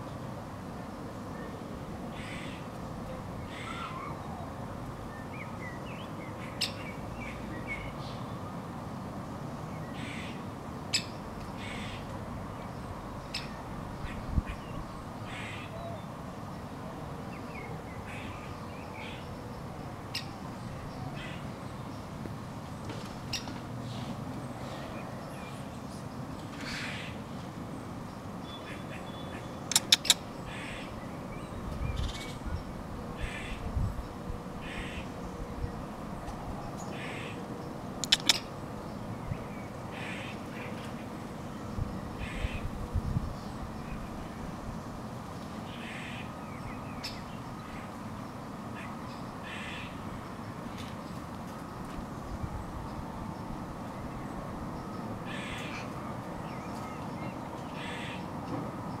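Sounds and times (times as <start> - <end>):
harsh cawing bird calls: 2.1 - 2.7, 3.5 - 4.3, 10.0 - 12.1, 15.3 - 16.0, 18.0 - 19.3, 21.1 - 21.6, 26.6 - 27.2, 28.6 - 31.0, 33.2 - 33.7, 34.6 - 35.2, 36.9 - 38.5, 39.9 - 40.9, 42.2 - 42.8, 45.7 - 46.4, 48.7 - 50.0, 55.2 - 56.0, 57.0 - 58.4.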